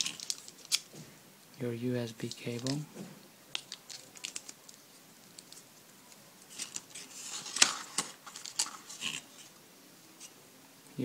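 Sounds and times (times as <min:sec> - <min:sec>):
cardboard packaging rustling: 0:00.0 - 0:01.0, 0:03.5 - 0:09.5.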